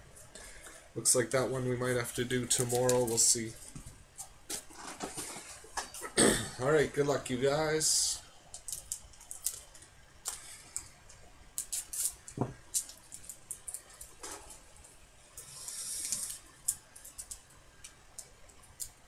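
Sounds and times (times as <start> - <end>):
foil wrapper crinkling: 8.6 - 10.5, 11.6 - 14.6.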